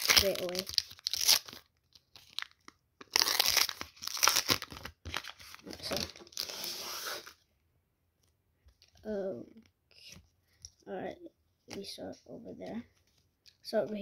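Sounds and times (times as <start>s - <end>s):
wrapper crinkling and rustling: 0.0s - 6.7s.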